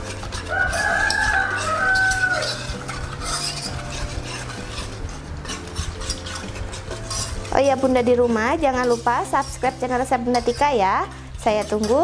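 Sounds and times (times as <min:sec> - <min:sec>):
whisk clicking against pan: 0:00.0 - 0:12.0
wire whisk stirring batter: 0:00.0 - 0:12.0
rooster crowing: 0:00.5 - 0:02.8.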